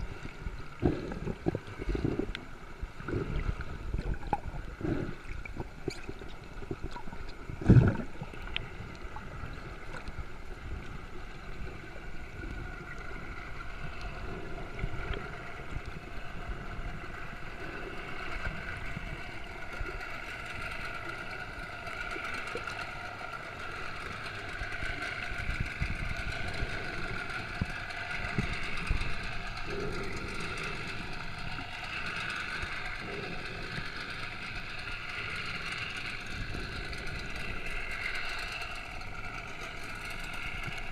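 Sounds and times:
boat engine running: 0:00.0 - 0:40.9
water noise: 0:00.0 - 0:40.9.

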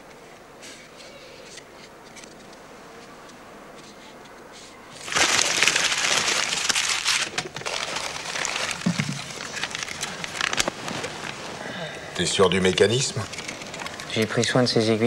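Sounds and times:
newspaper crinkling and rustling: 0:03.8 - 0:15.0.

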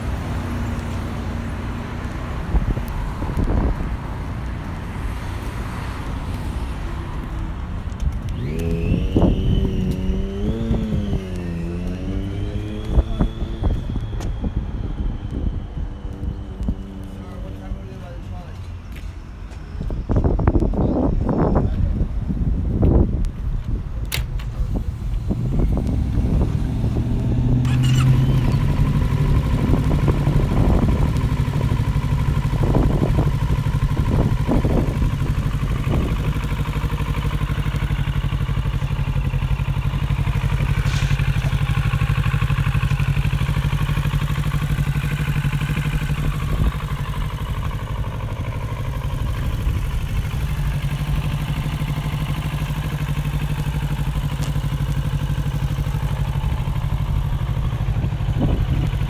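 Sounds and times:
motorcycle engine idling: 0:24.4 - 0:59.0.

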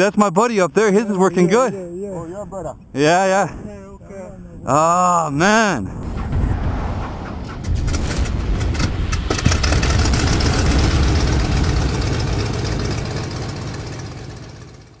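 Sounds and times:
sharp hit: 0:05.9 - 0:13.9
deep engine-like rumble: 0:05.9 - 0:15.0.

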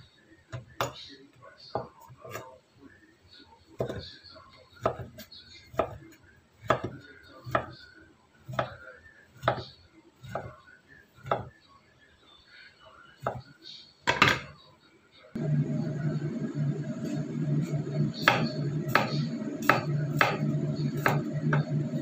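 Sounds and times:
knife chopping on wooden board: 0:03.8 - 0:04.0, 0:04.8 - 0:06.0, 0:06.6 - 0:07.7, 0:09.4 - 0:10.5, 0:11.2 - 0:11.5, 0:18.1 - 0:22.0.

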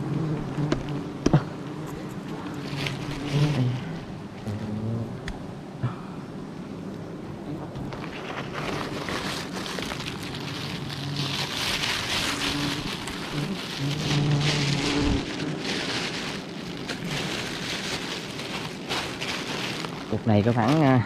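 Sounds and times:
bees buzzing: 0:00.0 - 0:20.5
plastic bag rustling: 0:02.5 - 0:04.0, 0:07.9 - 0:21.0.

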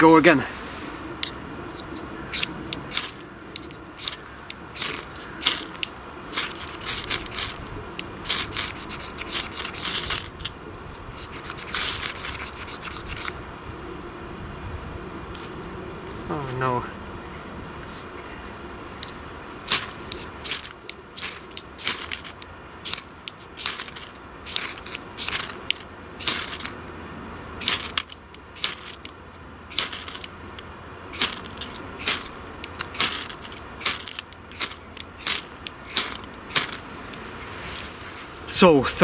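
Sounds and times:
fire steel rasping strokes: 0:04.8 - 0:13.4, 0:19.7 - 0:26.8, 0:27.6 - 0:29.1, 0:29.7 - 0:30.3, 0:31.1 - 0:38.4.

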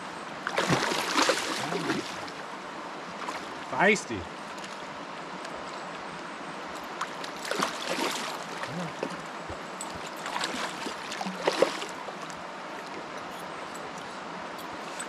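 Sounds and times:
river rushing: 0:00.0 - 0:15.0
fish splashing at the surface: 0:00.5 - 0:02.4, 0:07.3 - 0:09.2, 0:10.2 - 0:12.0.

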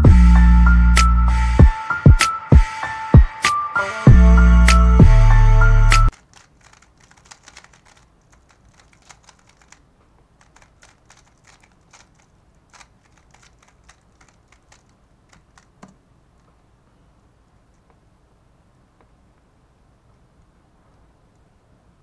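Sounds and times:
speed cube clicking: 0:06.1 - 0:16.5.

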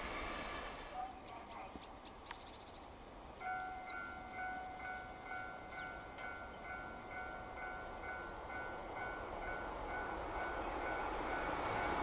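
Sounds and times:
bird chirps: 0:01.0 - 0:06.9, 0:07.8 - 0:08.8, 0:10.3 - 0:10.9.

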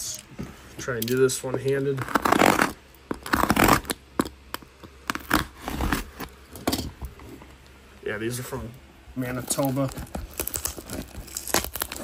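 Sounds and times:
hands scraping cardboard packaging: 0:02.0 - 0:04.3, 0:05.1 - 0:06.3, 0:09.5 - 0:12.0.

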